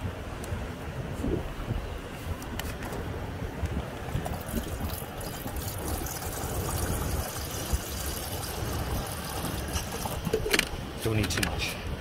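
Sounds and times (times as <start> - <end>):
water pouring into metal kettle: 4.2 - 10.5.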